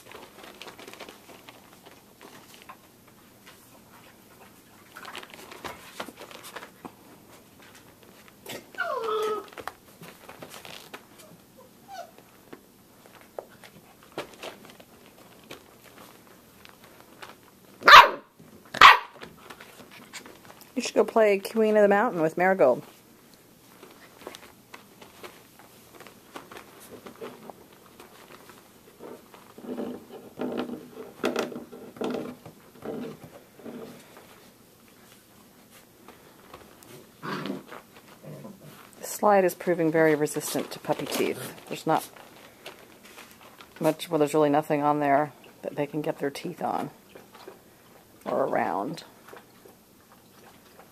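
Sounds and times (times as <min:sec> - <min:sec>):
teeth and paws on plastic: 0:00.0 - 0:11.5, 0:12.1 - 0:20.8, 0:22.8 - 0:39.0, 0:39.6 - 0:44.0, 0:45.3 - 0:50.9
puppies tapping and scuffling: 0:00.0 - 0:50.9
puppy yelping: 0:08.5 - 0:09.6, 0:11.2 - 0:12.2, 0:17.8 - 0:19.2
small puppy squeal: 0:08.8 - 0:09.5, 0:11.8 - 0:12.2
puppies growly grunts: 0:37.2 - 0:38.8.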